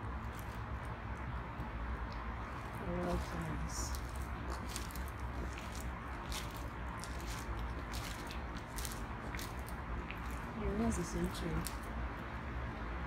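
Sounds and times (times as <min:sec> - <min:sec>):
steady low rumble: 0:00.0 - 0:13.0
footsteps crunching on gravel: 0:02.2 - 0:11.9.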